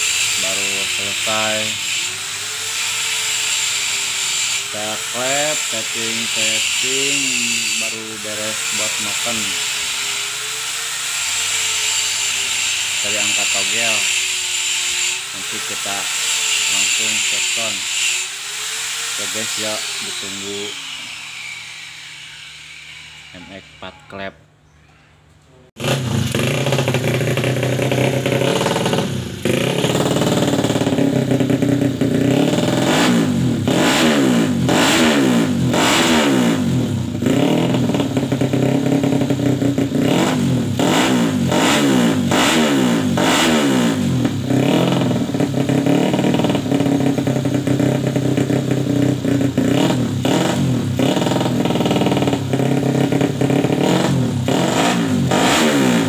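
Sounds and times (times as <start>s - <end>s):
motorcycle engine revving: 0.0s - 24.4s, 25.7s - 56.0s.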